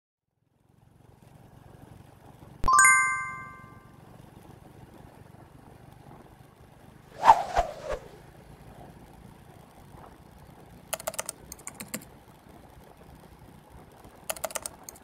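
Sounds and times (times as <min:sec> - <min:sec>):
motorcycle humming: 0:00.4 - 0:02.6, 0:03.6 - 0:15.0.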